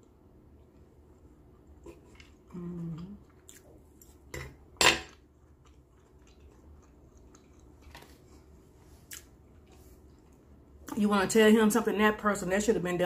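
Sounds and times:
person humming closed-mouth: 2.5 - 3.2.

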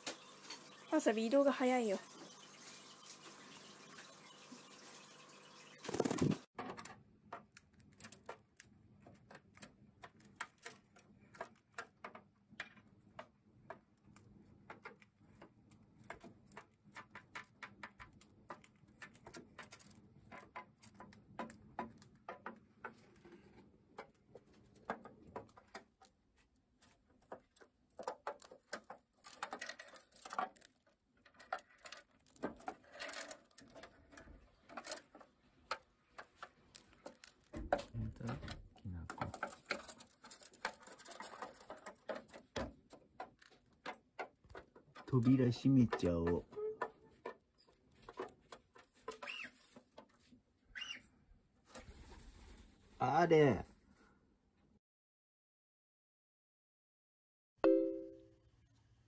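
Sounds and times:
bird clicking in plastic house: 5.9 - 50.9.

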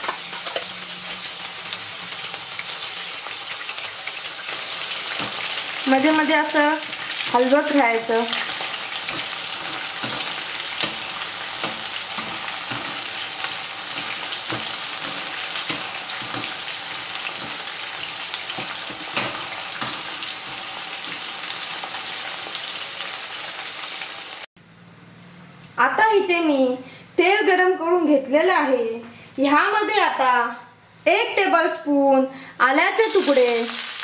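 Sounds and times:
prawns sizzling in hot oil: 0.0 - 24.5, 32.8 - 34.0.

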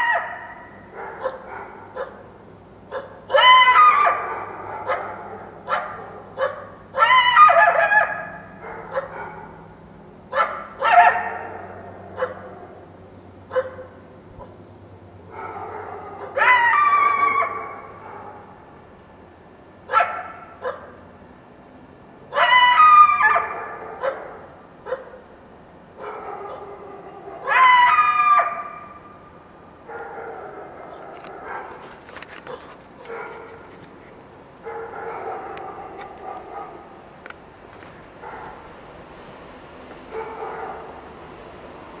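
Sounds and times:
coyote yelping: 2.9 - 9.2, 15.6 - 18.3, 22.3 - 25.2, 27.3 - 28.9.

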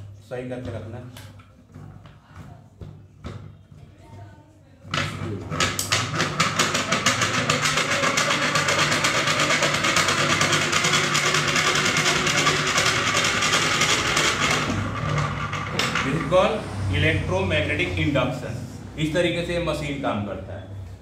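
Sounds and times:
induction machine whirring rattle: 5.5 - 16.6.

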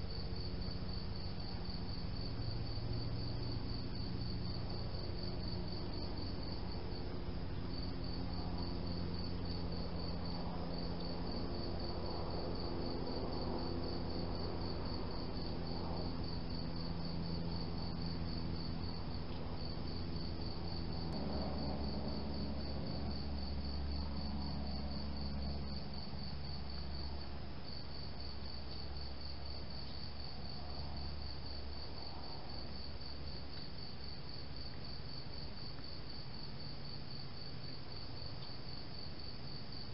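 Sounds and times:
crickets chirping: 0.0 - 39.9
low steady hum: 0.0 - 39.9.

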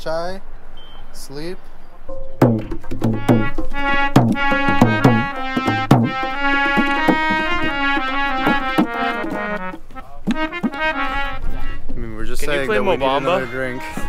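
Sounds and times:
dholak drum strokes: 2.4 - 10.8
harmonium chords: 2.4 - 12.0.

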